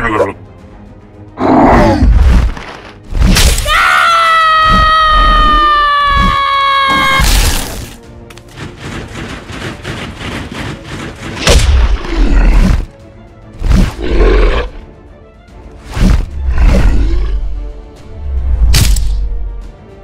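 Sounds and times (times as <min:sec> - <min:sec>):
background music: 0:00.0 - 0:20.0
sharp crack: 0:11.2 - 0:12.2, 0:18.7 - 0:19.3.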